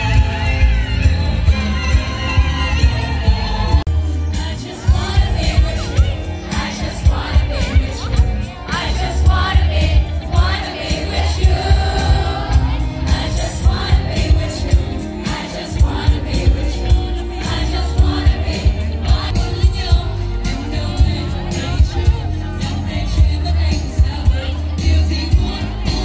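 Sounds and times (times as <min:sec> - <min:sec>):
heavy pulsing bass beat: 0:00.0 - 0:26.0
live amplified pop music: 0:00.0 - 0:26.0
women singing into microphones: 0:04.3 - 0:22.0, 0:22.9 - 0:26.0.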